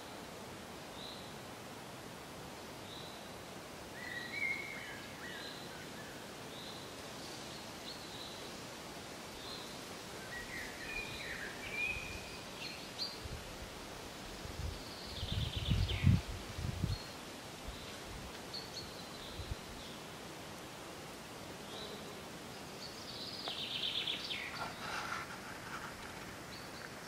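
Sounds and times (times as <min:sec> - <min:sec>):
steady hiss: 0:00.0 - 0:27.0
small birds chirping: 0:14.6 - 0:16.2, 0:21.6 - 0:27.0.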